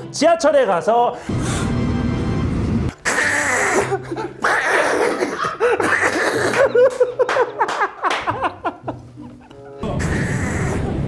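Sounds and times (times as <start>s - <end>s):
loud breathy laughter: 3.6s - 10.7s.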